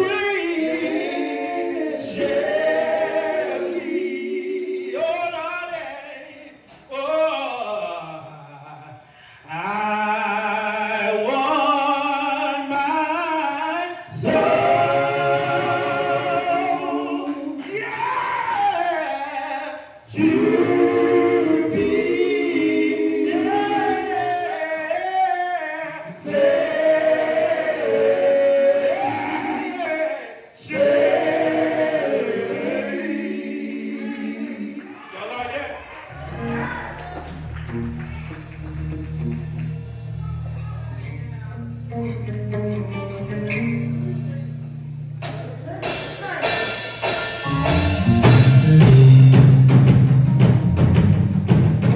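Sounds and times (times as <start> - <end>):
male vocal trio singing a cappella: 0.0 - 35.8.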